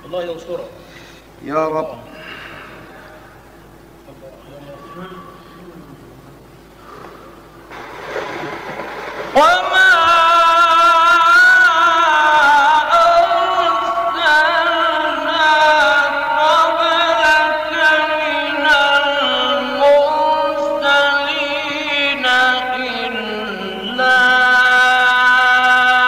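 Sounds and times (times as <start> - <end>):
man chanting melodically: 4.0 - 6.2, 9.3 - 26.0.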